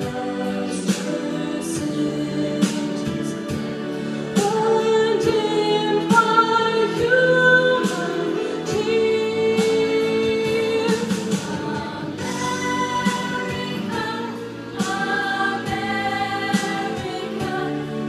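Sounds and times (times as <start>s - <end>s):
choir singing in harmony: 0.0s - 18.0s
instrumental accompaniment: 0.0s - 18.0s
sharp rhythmic beats: 9.7s - 18.0s.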